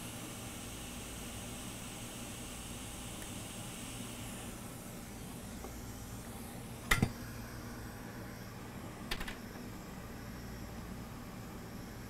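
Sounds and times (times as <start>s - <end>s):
bench equipment hum and hiss: 0.0s - 12.0s.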